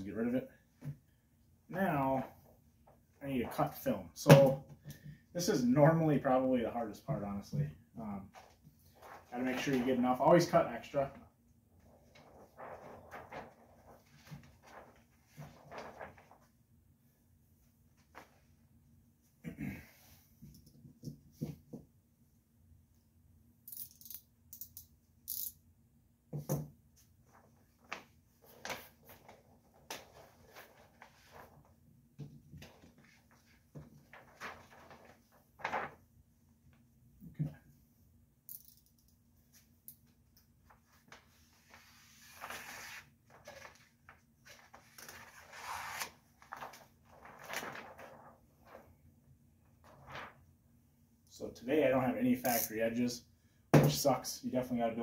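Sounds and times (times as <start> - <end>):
film rustling: 8.3 - 10.6, 11.8 - 16.6, 27.2 - 36.1, 40.6 - 49.0, 49.7 - 50.5.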